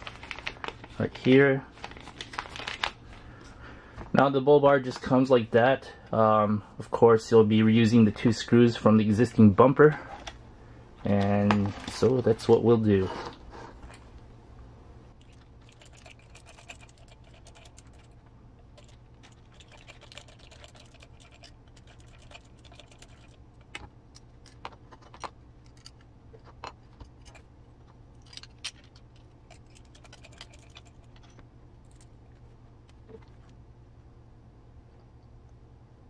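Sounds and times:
steady low hum: 0.0 - 36.0
small parts handled: 18.8 - 32.2.

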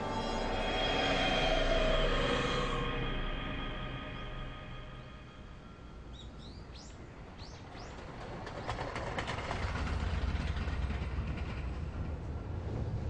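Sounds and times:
train rumbling: 0.0 - 13.0
wheels clicking over rail joints: 7.4 - 12.9.

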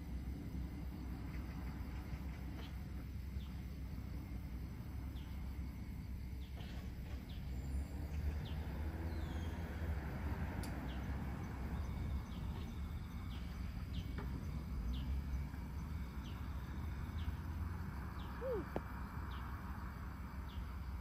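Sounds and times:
low outdoor rumble: 0.0 - 21.0
bird chirping: 6.4 - 9.8, 18.1 - 19.5.

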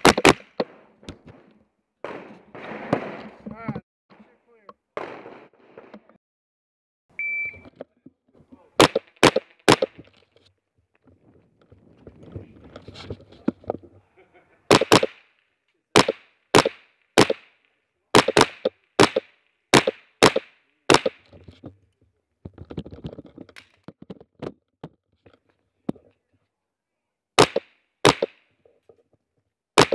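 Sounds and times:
short beep: 7.1 - 7.7
rifle shots with echo: 14.7 - 15.2, 16.0 - 17.6, 18.2 - 21.2.

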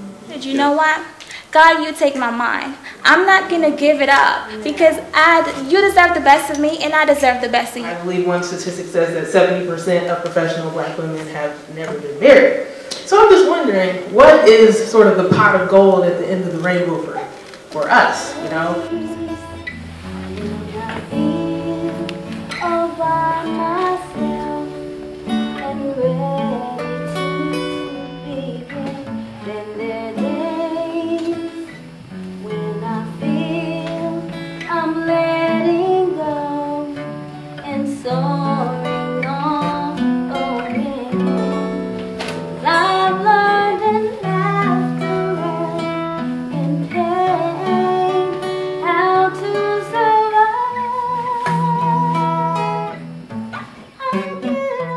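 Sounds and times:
acoustic guitar: 0.0 - 54.9
person singing: 17.1 - 31.8, 32.4 - 41.7, 42.6 - 52.9, 54.0 - 54.9.

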